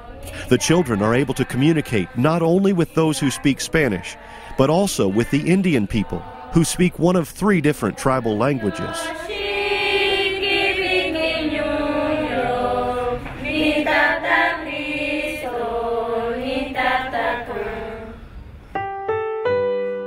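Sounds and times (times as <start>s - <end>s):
choir singing: 0.0s - 18.3s
piano notes: 18.6s - 20.0s.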